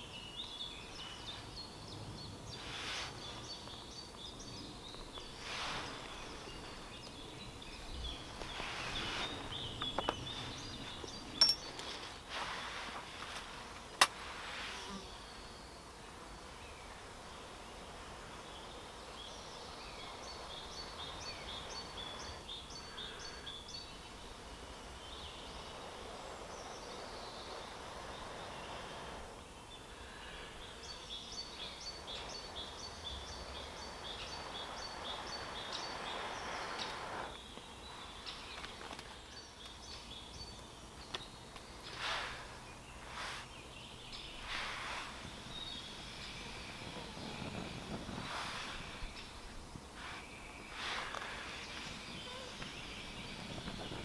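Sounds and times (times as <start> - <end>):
breath blowing into stove: 44.4 - 49.3.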